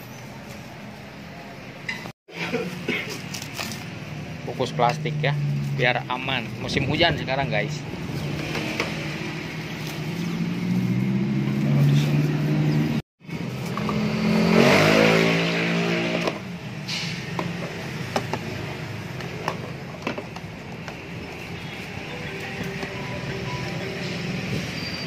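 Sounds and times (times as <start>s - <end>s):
vehicle engine passing: 4.9s - 16.8s.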